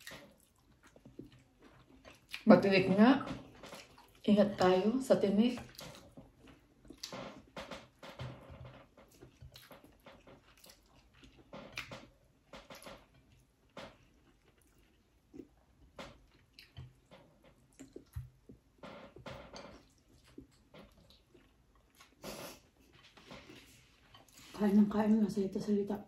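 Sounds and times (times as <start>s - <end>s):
people chewing and lip-smacking: 0.0s - 2.5s, 8.8s - 24.5s.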